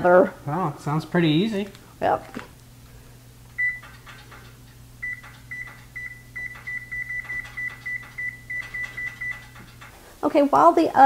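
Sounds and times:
oven control panel beeps: 3.6s - 4.0s, 5.0s - 9.7s.

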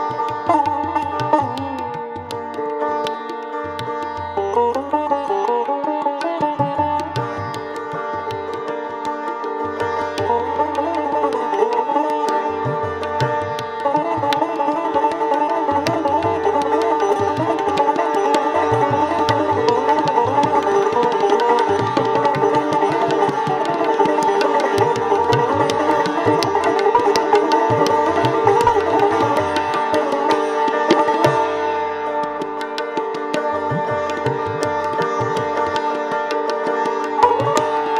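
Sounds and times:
plucked sitar: 0.0s - 37.9s
tabla strokes: 0.0s - 37.9s.

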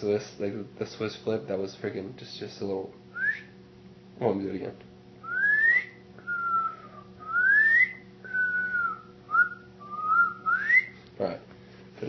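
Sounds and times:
person whistling a tune: 3.2s - 3.6s, 5.2s - 11.0s.

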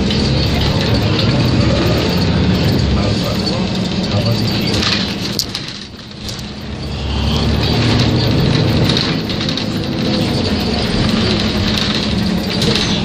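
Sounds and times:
road noise hiss: 0.0s - 9.7s
bus diesel engine running: 0.0s - 13.0s.

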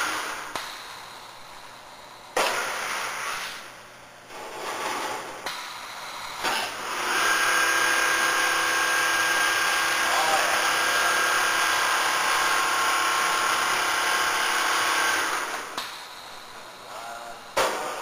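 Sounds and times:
quilting machine running: 6.0s - 16.2s.

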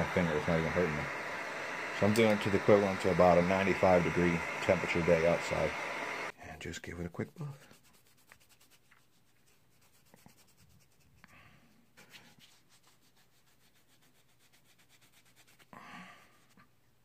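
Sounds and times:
cloth rubbing leather strap: 7.6s - 11.3s, 11.9s - 16.6s.

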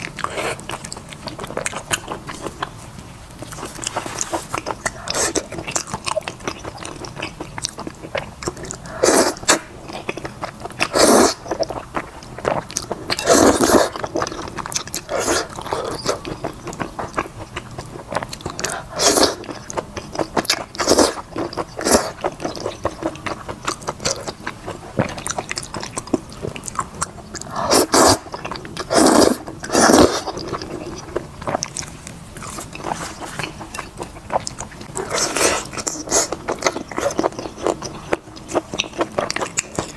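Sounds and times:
person chewing and slurping noodles: 0.0s - 39.9s.

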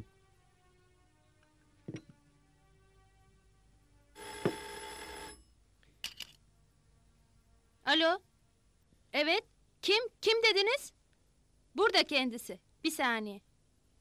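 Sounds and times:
telephone bell ringing: 4.2s - 5.5s.

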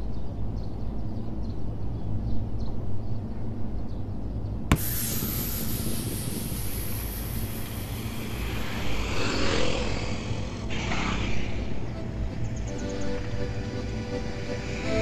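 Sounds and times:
motorcycle and scooter engines: 4.7s - 15.0s
motorcycle passing close: 5.8s - 12.7s.

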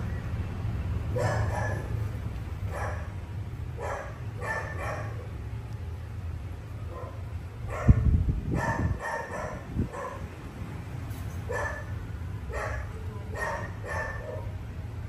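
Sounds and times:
dog barking: 1.1s - 2.0s, 2.7s - 3.2s, 3.8s - 5.4s, 6.9s - 10.3s, 11.5s - 11.9s, 12.5s - 14.6s.

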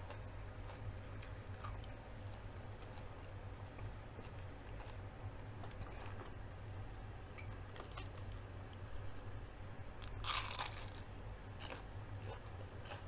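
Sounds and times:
crunch of biting onion ring: 10.2s - 11.0s.

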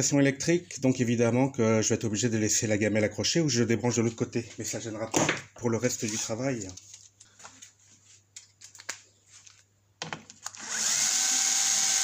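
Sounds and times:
cordless drill whining: 10.5s - 12.0s.

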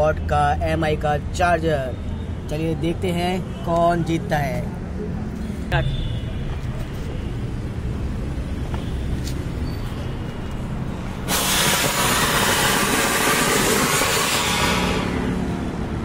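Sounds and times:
firework fountain hissing: 11.3s - 15.4s.

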